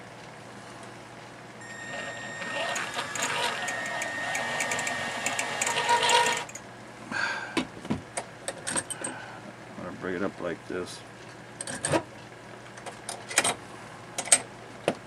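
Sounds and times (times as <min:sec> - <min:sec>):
drill motor whine: 0:01.6 - 0:06.5
drill bit grinding on metal: 0:01.6 - 0:06.6.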